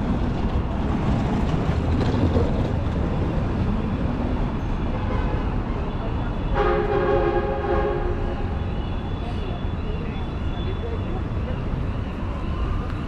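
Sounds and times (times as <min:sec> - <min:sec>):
traffic hum and rumble: 0:00.0 - 0:13.0
loud chord horn: 0:06.5 - 0:08.3.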